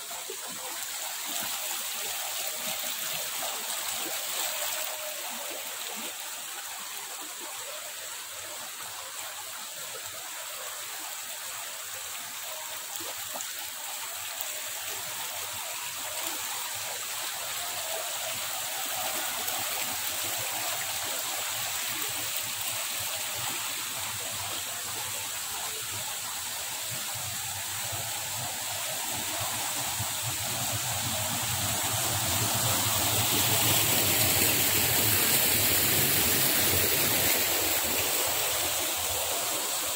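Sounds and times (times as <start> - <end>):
water rushing over rocks: 12.8 - 39.9.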